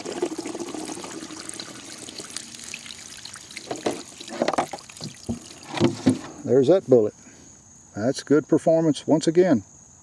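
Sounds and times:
water pouring from plastic jug: 0.0 - 6.4.

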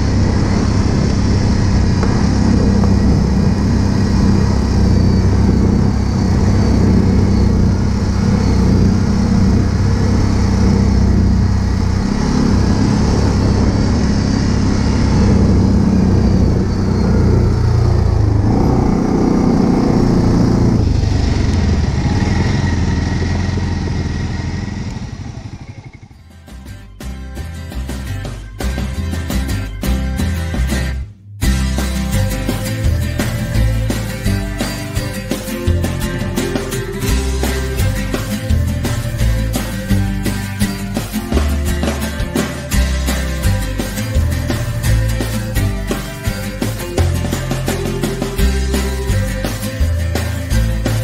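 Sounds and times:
music: 0.0 - 13.4, 26.2 - 51.0
quad bike engine running: 0.0 - 30.8, 31.4 - 51.0.

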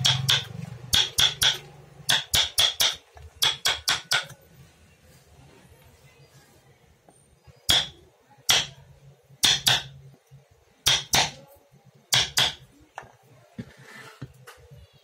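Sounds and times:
hammer blows ringing: 0.0 - 4.3.

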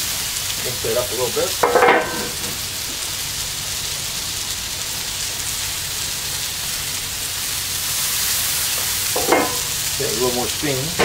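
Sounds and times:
food sizzling on a griddle: 0.0 - 11.0.

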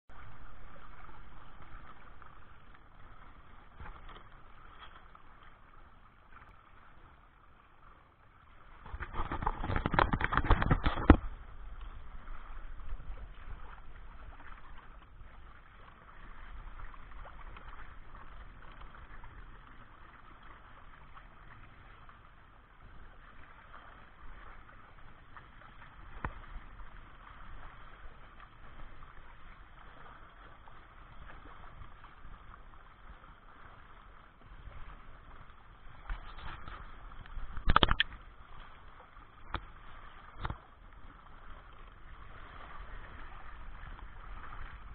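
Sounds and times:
water rushing along a hull: 0.1 - 44.9
sharp click: 37.7 - 38.2.

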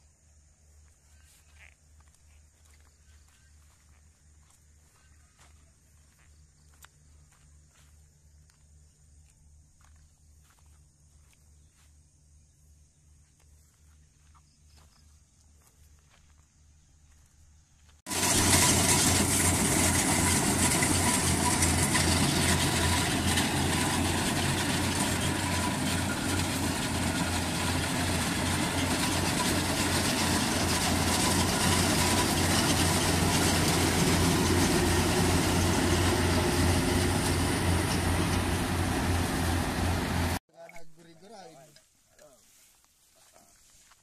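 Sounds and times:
combine harvester engine drone: 18.1 - 40.4.

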